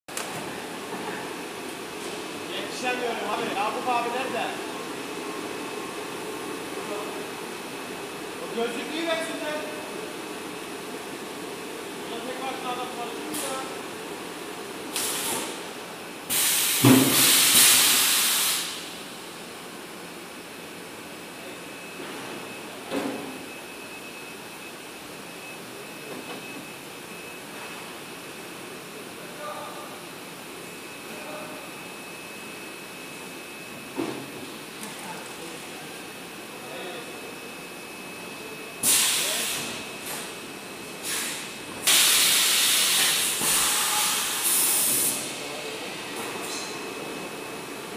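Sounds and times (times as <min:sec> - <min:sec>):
machine air hiss: 0:14.9 - 0:15.6, 0:16.3 - 0:19.0, 0:38.8 - 0:40.3, 0:41.0 - 0:45.4.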